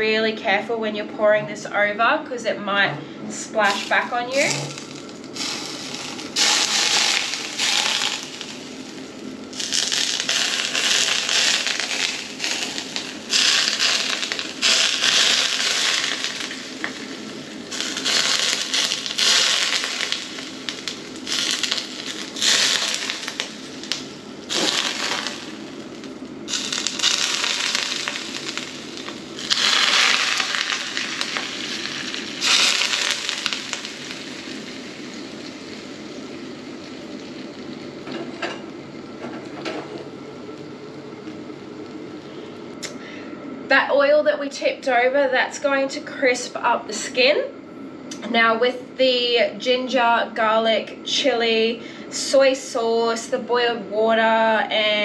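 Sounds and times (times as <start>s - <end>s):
hot oil sizzling on fish: 3.6s - 38.5s.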